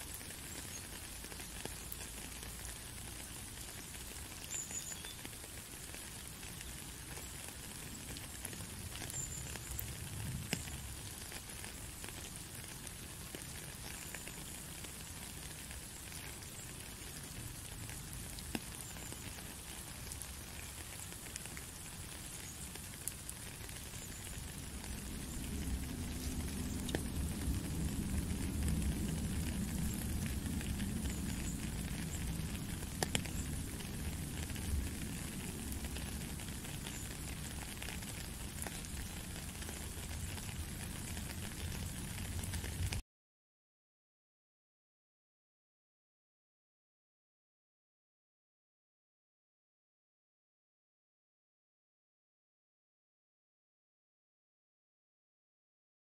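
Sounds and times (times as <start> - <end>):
rain on puddle and gravel: 0.0 - 43.0
water drips ticking: 0.0 - 43.0
low rumble: 24.5 - 33.0.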